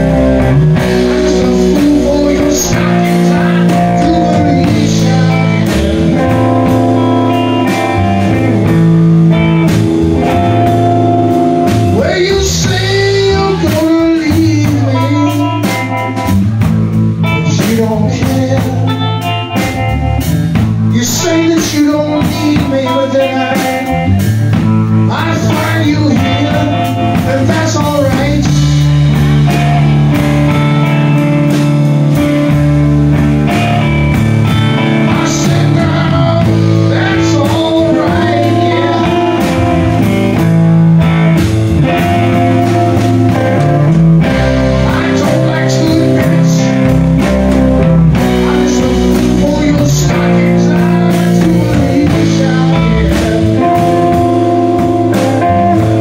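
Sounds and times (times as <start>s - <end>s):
lead vocal singing: 0.0s - 8.6s, 11.7s - 15.9s, 17.2s - 19.3s, 20.9s - 24.4s, 25.0s - 32.5s, 34.3s - 40.4s, 44.2s - 56.0s
bass guitar: 0.0s - 56.0s
drum kit: 0.0s - 56.0s
electric guitars: 0.0s - 56.0s.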